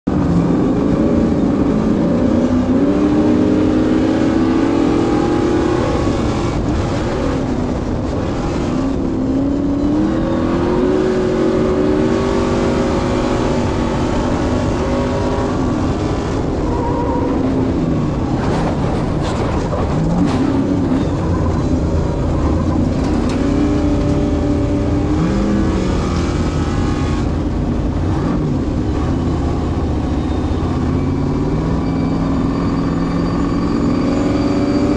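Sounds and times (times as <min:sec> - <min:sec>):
racing truck engine revving: 0:00.1 - 0:34.9
knocks and rattles: 0:18.2 - 0:24.2.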